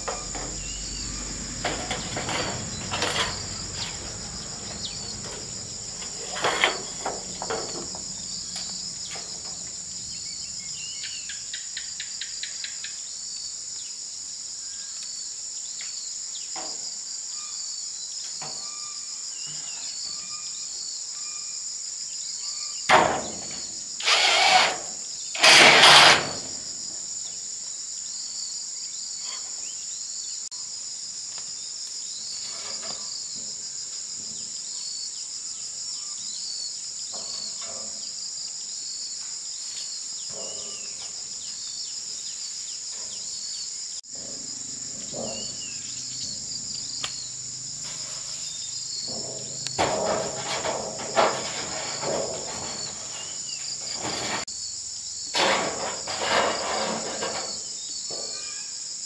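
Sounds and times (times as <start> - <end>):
bird chirps: 0.0 - 5.4, 10.0 - 13.0
insect chorus: 0.0 - 59.0
knocks: 49.0 - 53.2.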